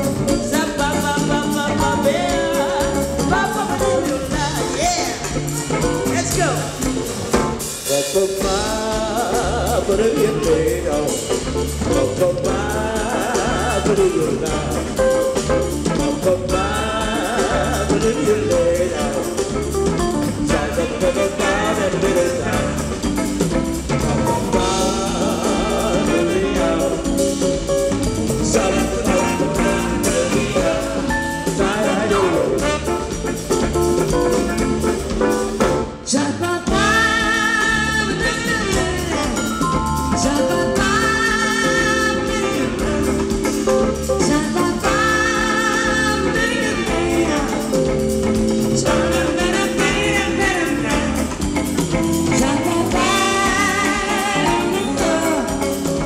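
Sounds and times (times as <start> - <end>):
drum beat: 0.0 - 36.0, 36.7 - 56.0
jazz band playing: 0.0 - 56.0
woman singing: 0.2 - 5.8, 7.8 - 23.1, 35.9 - 51.5, 52.2 - 56.0.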